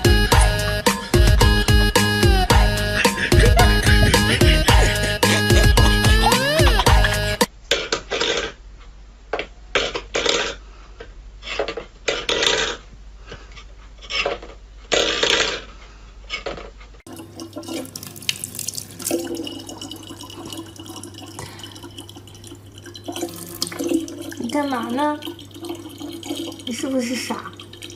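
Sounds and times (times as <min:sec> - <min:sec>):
low hum: 0:00.0 - 0:07.5
tap water trickling into bottle: 0:17.1 - 0:27.9.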